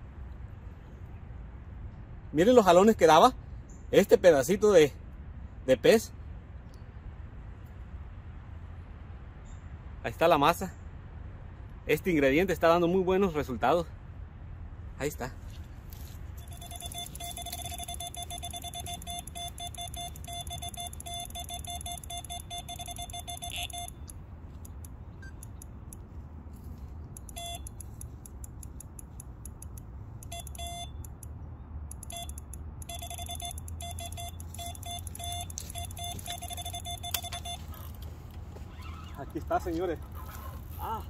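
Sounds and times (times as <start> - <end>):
bite alarm beeping rapidly: 16.4 - 25.6, 27.2 - 27.8, 29.6 - 31.2, 31.9 - 38.0
fast ticking: 16.4 - 26.0, 31.9 - 38.1.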